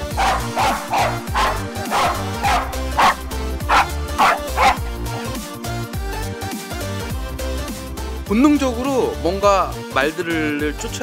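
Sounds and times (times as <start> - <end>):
dog barking: 0.0 - 5.4
background music: 0.0 - 11.0.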